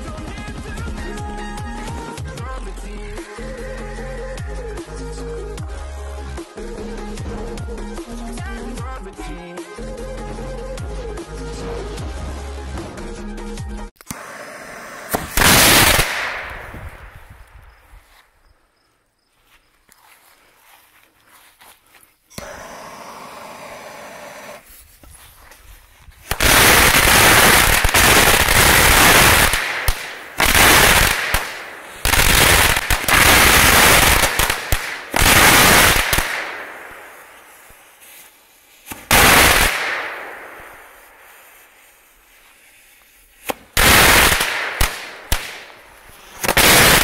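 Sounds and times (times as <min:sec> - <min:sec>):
firework fuse hissing: 0:14.0 - 0:17.8, 0:22.3 - 0:25.5, 0:26.2 - 0:47.0
firecrackers banging: 0:14.1 - 0:17.3, 0:26.3 - 0:37.8, 0:38.8 - 0:41.5, 0:43.4 - 0:47.0.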